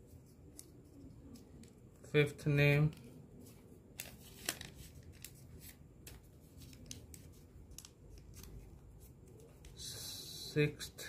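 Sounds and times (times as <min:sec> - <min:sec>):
paper folding and crinkling: 0:02.9 - 0:09.7
paper rustle: 0:03.4 - 0:09.7.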